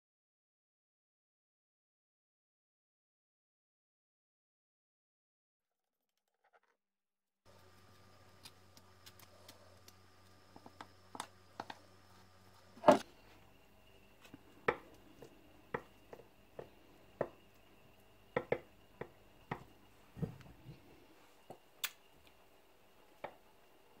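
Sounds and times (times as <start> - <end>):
faint steady hum: 7.5 - 24.0
spatula tapping against dish: 18.4 - 19.7.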